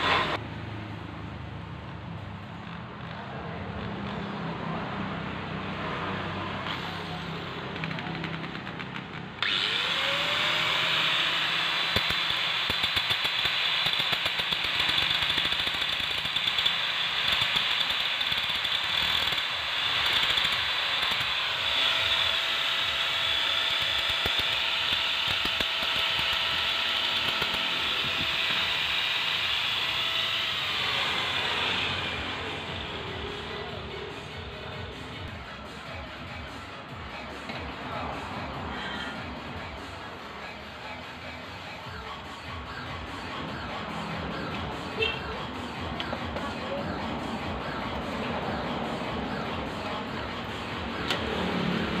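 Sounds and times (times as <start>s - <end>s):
electric drill running: 6.6s - 33.5s
steady whine: 6.6s - 52.0s.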